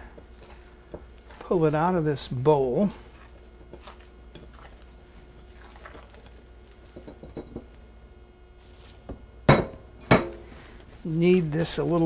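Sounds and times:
hands handling bread dough: 8.6s - 9.3s.

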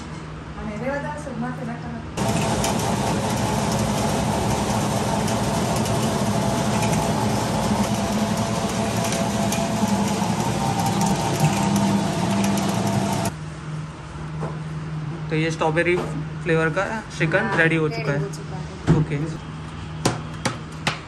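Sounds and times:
blade churning with light rattle: 2.2s - 13.3s
mixing machine motor humming: 2.2s - 13.4s.

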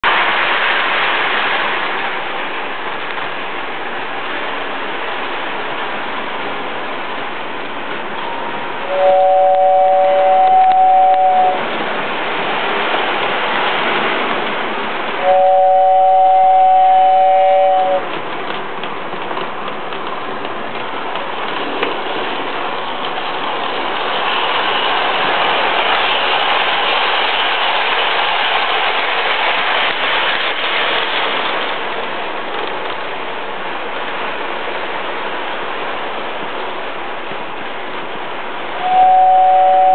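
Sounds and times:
toy train two-note horn: 8.9s - 11.6s, 15.2s - 18.1s, 38.8s - 39.9s.

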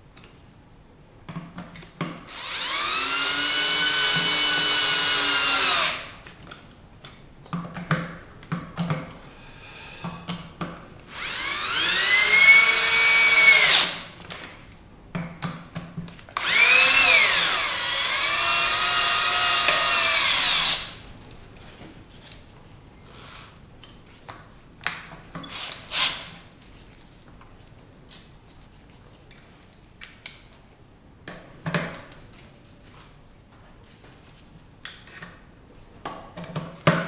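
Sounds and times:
cordless drill motor whine: 2.2s - 6.1s, 11.1s - 14.0s, 16.4s - 21.0s, 25.5s - 26.1s.

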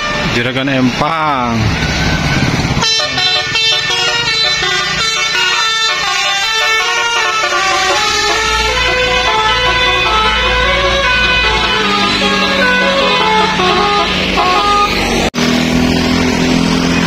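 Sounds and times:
bus air horn melody: 0.0s - 0.3s, 2.8s - 15.2s.

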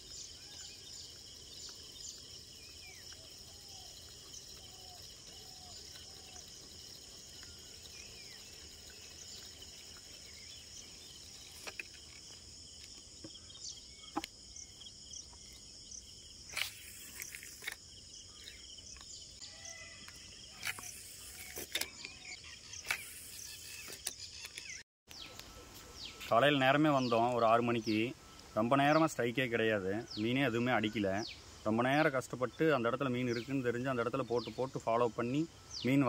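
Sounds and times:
bird chirps: 0.0s - 12.3s, 13.2s - 29.3s
crickets chirping: 0.0s - 36.0s.

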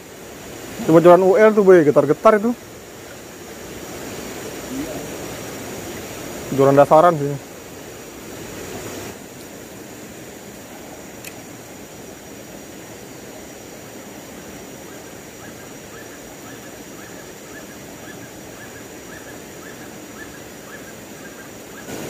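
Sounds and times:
river rushing over rocks: 0.0s - 22.0s
faint high ticks: 11.1s - 11.5s.

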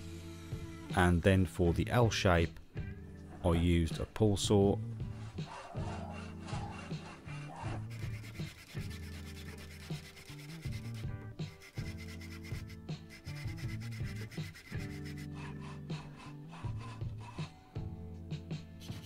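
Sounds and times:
background music: 0.0s - 19.0s
hand saw cutting wood: 5.0s - 17.7s.

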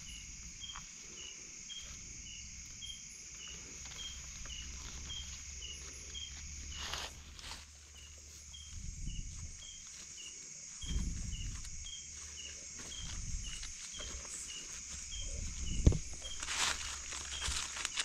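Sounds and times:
hands rustling in dry leaves: 3.6s - 18.0s.

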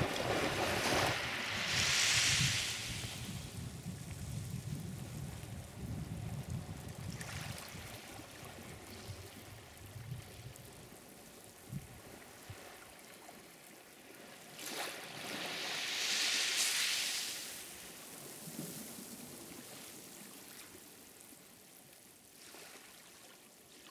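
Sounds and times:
wave surging and draining: 0.0s - 4.1s
waves washing on shore: 0.0s - 21.8s.

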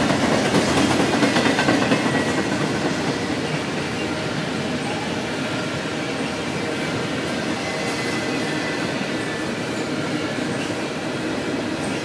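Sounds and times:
train wheels rumbling on rails: 0.0s - 12.0s
faint high wheel squeal: 7.5s - 10.8s.

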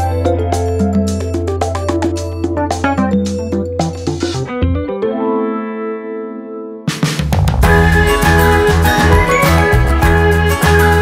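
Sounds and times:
plucked string music: 0.0s - 5.6s.

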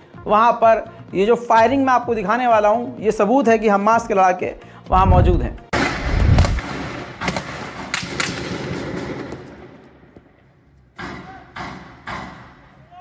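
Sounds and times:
gunshots echoing off buildings: 5.7s - 13.0s.

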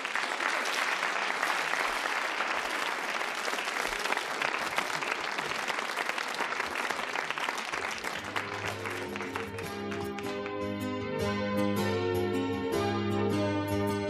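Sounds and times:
audience applause: 0.0s - 11.1s
music with pitched notes: 8.8s - 14.0s.

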